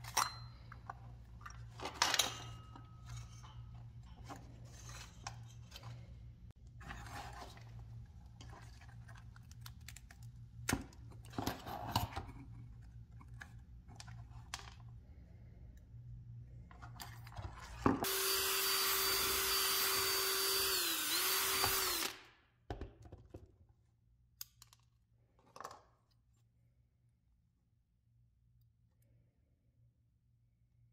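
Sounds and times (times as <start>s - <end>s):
cordless drill whining: 18.0s - 22.3s.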